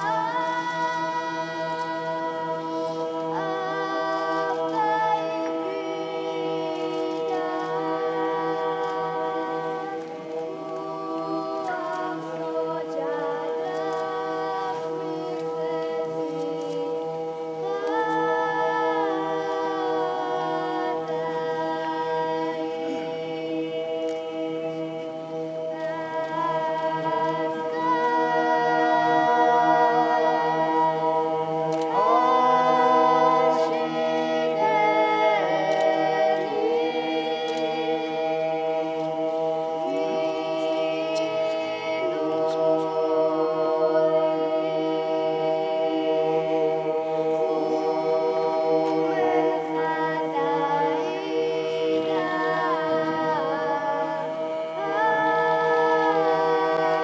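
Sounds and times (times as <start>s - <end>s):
choir singing a cappella hymn: 0.0s - 57.0s.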